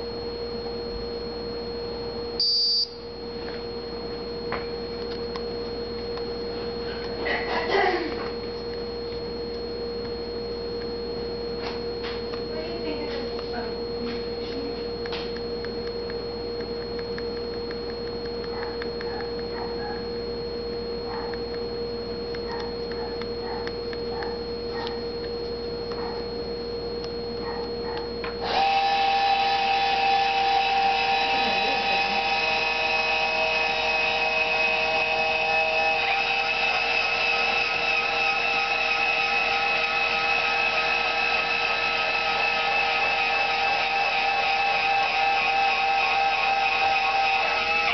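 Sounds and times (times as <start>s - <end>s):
motors and gears whining: 0.0s - 47.9s.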